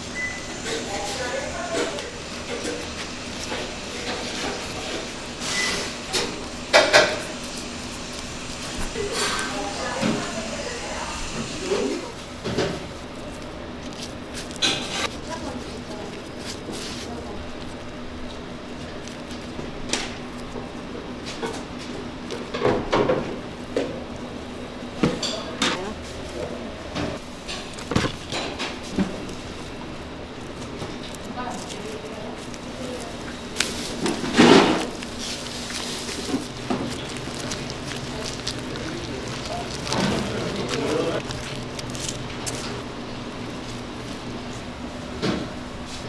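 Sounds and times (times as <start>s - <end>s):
steady background hum: 0.0s - 46.0s
plastic sheet crinkling: 11.8s - 20.6s, 27.2s - 44.8s.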